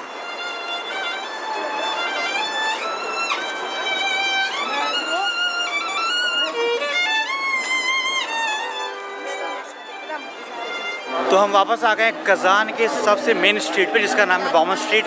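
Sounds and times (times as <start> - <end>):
solo violin slow melody: 0.0 - 12.0.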